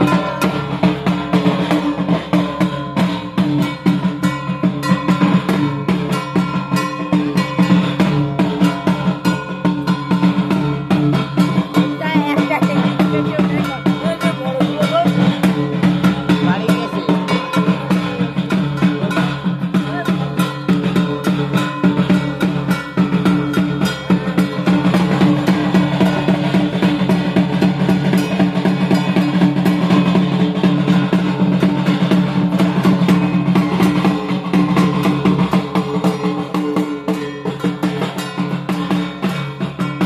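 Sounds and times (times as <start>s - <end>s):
drums beaten in fast rhythm: 0.0s - 40.0s.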